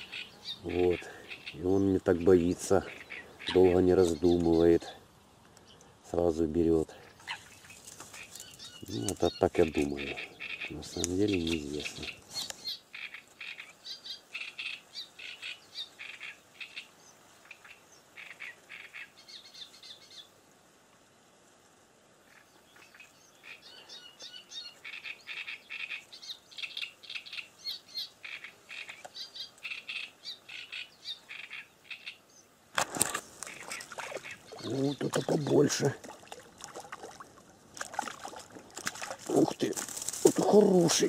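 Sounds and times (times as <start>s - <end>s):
songbird chirping: 0.0s - 21.3s, 22.1s - 41.0s.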